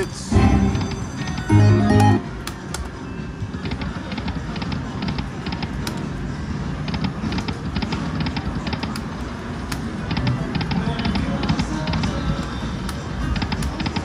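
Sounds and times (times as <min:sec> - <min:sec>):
slot machine clicks: 0:00.0 - 0:02.6
low casino hum: 0:00.0 - 0:14.0.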